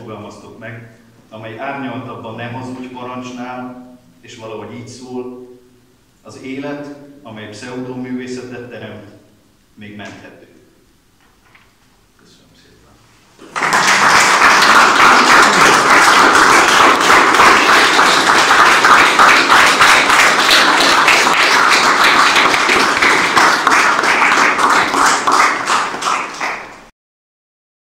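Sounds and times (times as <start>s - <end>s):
crowd applauding: 13.4s - 26.9s.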